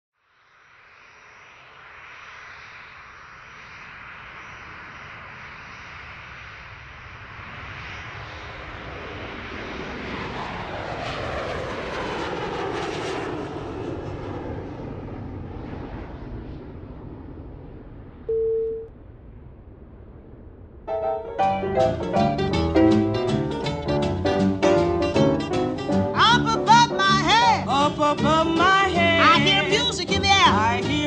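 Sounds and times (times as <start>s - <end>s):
jet engines roaring in cabin: 0.7s - 19.0s.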